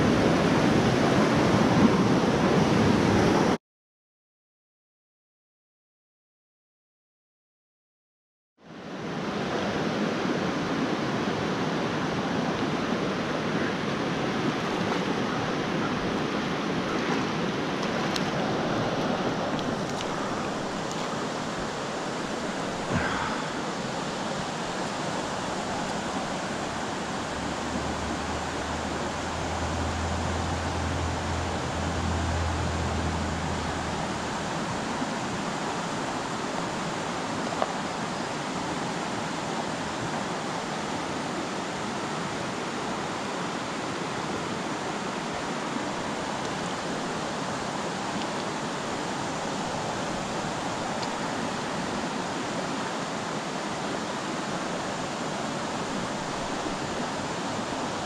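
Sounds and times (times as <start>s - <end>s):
stream water rushing: 0.0s - 3.6s, 8.6s - 58.0s.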